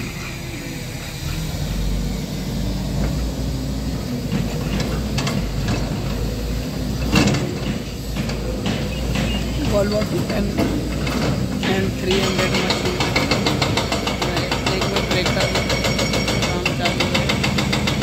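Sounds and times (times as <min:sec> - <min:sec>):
excavator diesel engines running: 0:00.0 - 0:18.0
metallic knocks: 0:07.0 - 0:18.0.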